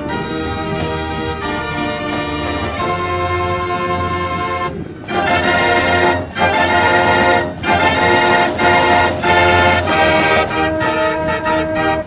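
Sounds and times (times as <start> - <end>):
fair organ playing chords: 5.1 - 10.4.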